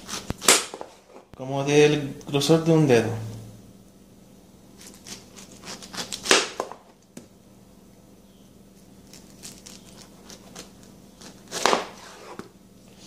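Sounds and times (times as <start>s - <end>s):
knife crunching through pineapple: 0.0s - 1.0s, 4.7s - 6.8s, 8.8s - 12.4s.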